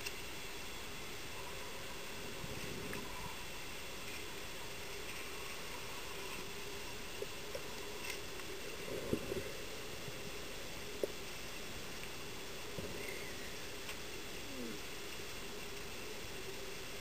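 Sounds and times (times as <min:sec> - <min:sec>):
faint hum: 0:00.0 - 0:17.0
muffled underwater hiss: 0:00.0 - 0:17.0.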